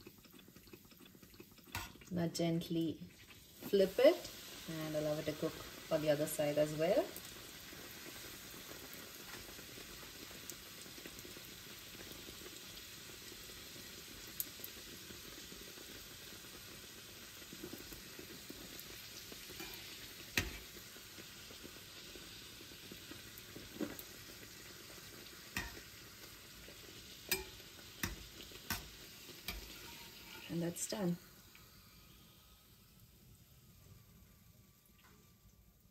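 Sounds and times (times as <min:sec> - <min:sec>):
bread sizzling in hot oil: 0:00.0 - 0:35.9
metal spoon clicking against pan: 0:25.6 - 0:25.8, 0:27.3 - 0:28.9.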